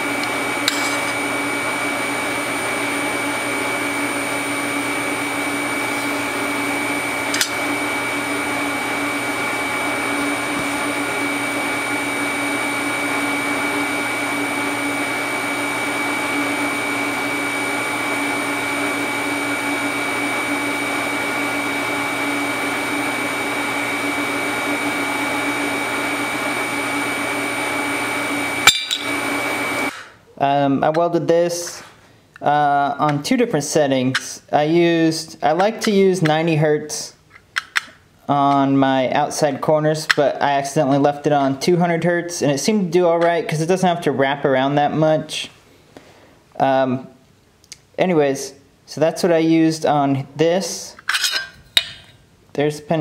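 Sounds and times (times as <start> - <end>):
welder whirring hum: 0.0 - 30.2.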